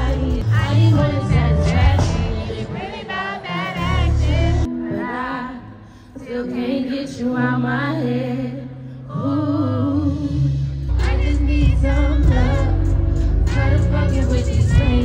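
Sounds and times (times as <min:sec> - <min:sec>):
heavy bass: 0:00.0 - 0:02.8, 0:03.8 - 0:04.7, 0:09.9 - 0:15.0.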